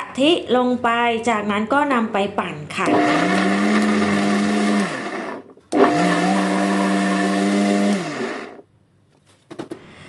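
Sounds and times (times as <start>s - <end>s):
blender motor running: 2.9s - 8.6s.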